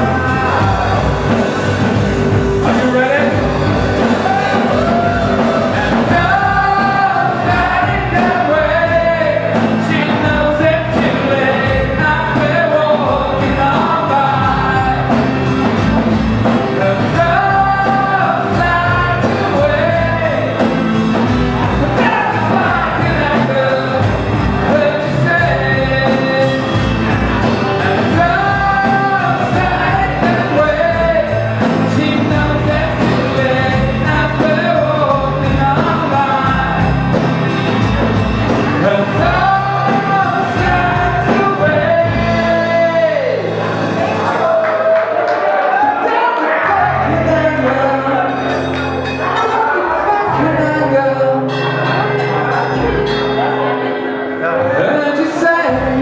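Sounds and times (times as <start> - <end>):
steady drum beat: 0.0 - 44.4
electric guitars: 0.0 - 56.0
male lead vocal: 0.0 - 56.0.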